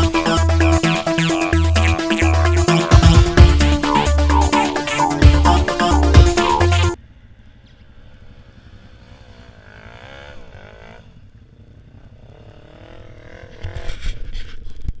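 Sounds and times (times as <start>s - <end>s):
off-road engines revving: 7.6s - 14.2s.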